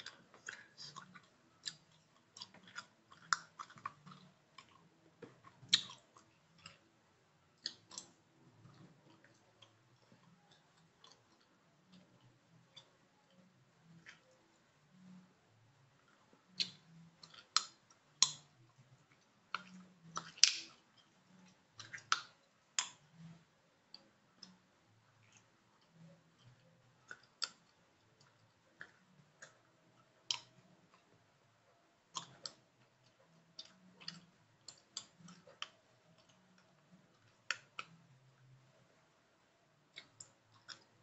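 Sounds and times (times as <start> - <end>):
gum chewing mouth clicks: 0.0 - 6.9, 7.6 - 13.0, 16.5 - 18.5, 19.1 - 23.4, 25.2 - 31.1, 32.1 - 38.0.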